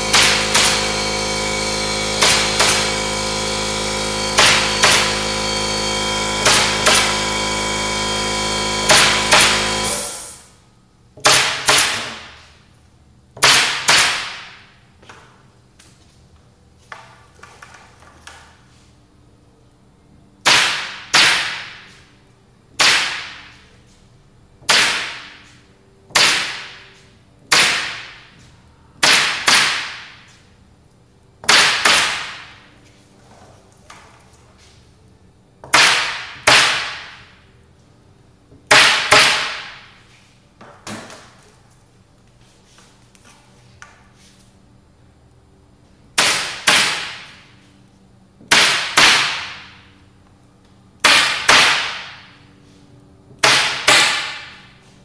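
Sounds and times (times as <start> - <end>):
pneumatic stapler firing: 0.0 - 10.5, 31.5 - 32.5, 46.2 - 47.4, 53.4 - 54.6.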